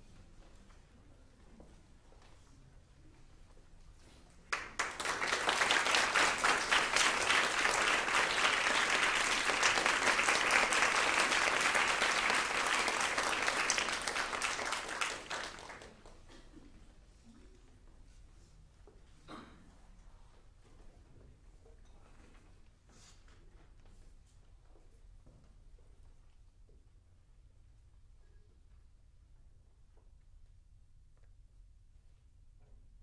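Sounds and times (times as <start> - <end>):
audience applauding: 4.5 - 16.2.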